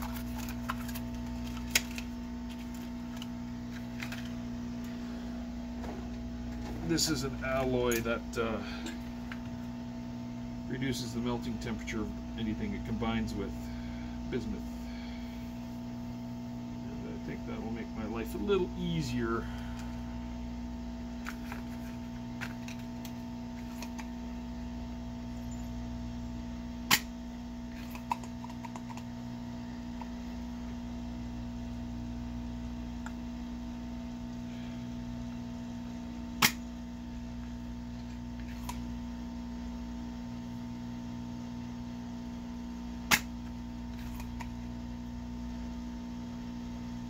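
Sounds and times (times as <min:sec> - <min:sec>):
desoldering pump snap: 0:00.0 - 0:03.3, 0:26.9 - 0:27.2, 0:36.4 - 0:36.7, 0:43.1 - 0:44.6
steady hum: 0:00.0 - 0:47.0.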